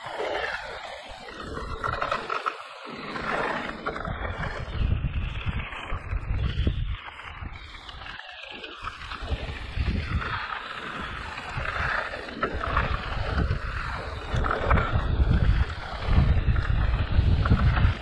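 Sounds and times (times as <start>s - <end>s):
tyres on gravel trail: 0.0s - 18.0s
wind rumble on microphone: 0.0s - 18.0s.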